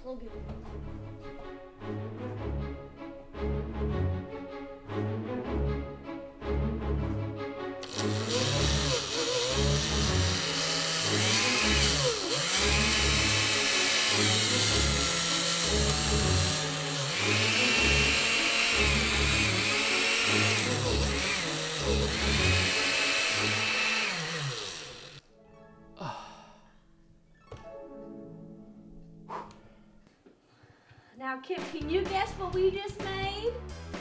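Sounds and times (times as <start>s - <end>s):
blender motor changing pitch: 7.8s - 25.2s
background music with bass line: 31.8s - 34.0s.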